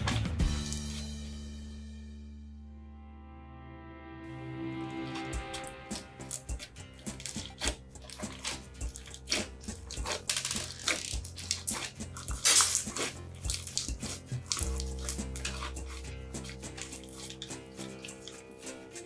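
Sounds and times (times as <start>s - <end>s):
slime squelching by hand: 4.9s - 19.0s.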